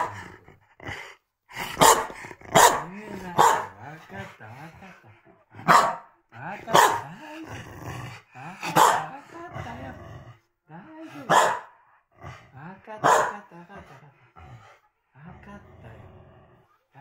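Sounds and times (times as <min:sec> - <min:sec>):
dog barking: 0:01.7 - 0:03.8, 0:05.6 - 0:06.1, 0:06.7 - 0:07.1, 0:08.6 - 0:09.1, 0:11.3 - 0:11.8, 0:13.0 - 0:13.4.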